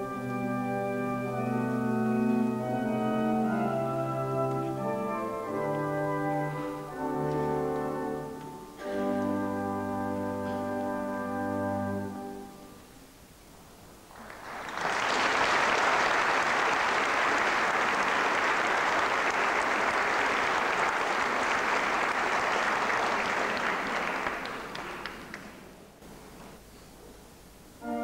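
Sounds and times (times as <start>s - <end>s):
audience applauding: 14.1s - 25.8s.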